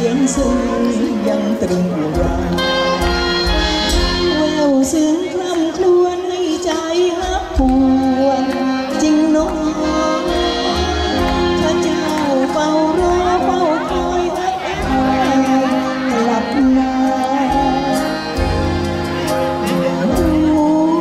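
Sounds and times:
woman singing into a microphone: 0.0s - 2.7s, 4.1s - 18.5s, 19.2s - 21.0s
live band playing: 0.0s - 21.0s.

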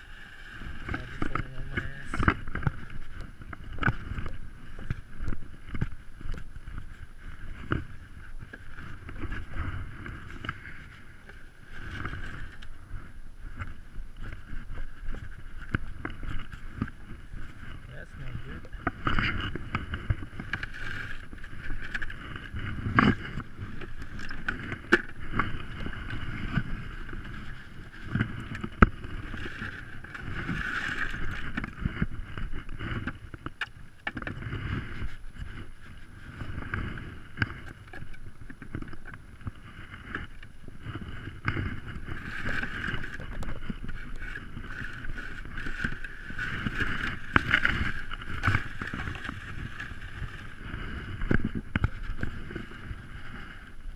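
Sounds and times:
plastic sled scraping over ground: 0.0s - 53.9s.

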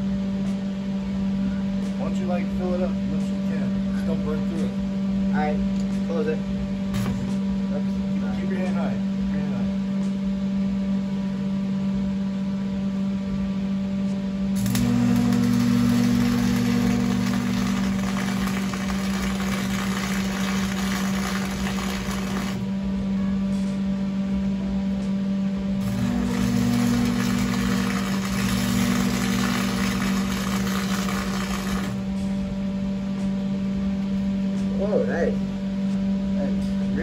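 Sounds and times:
steady electrical hum: 0.0s - 37.0s
arc welding crackle: 14.6s - 22.8s, 25.8s - 32.1s.

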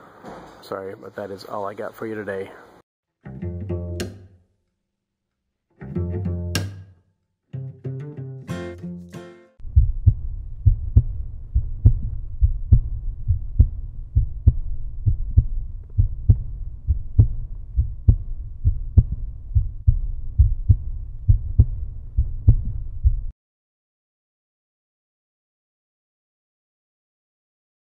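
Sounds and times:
deep low thumping pulse: 9.6s - 23.3s.

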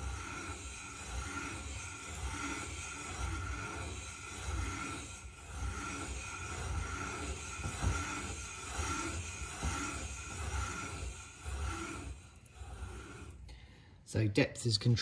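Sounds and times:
hand cutter rasping on metal: 0.0s - 13.8s.

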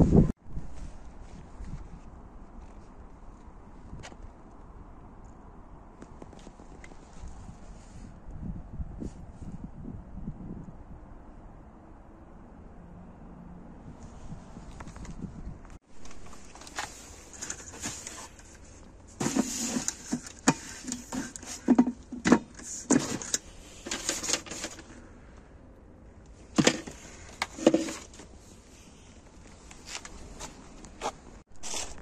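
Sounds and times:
cardboard and plastic rustling: 15.9s - 25.0s, 26.5s - 32.0s
junk clattering and knocking: 19.2s - 24.9s, 26.6s - 28.2s.

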